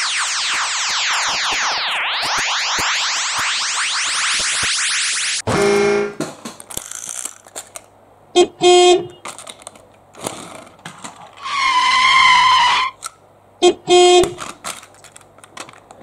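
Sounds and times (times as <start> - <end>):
wavering high whistle-like tone: 0.0 - 5.4
toy train horn toots: 5.6 - 6.1, 8.4 - 9.2, 13.6 - 14.4.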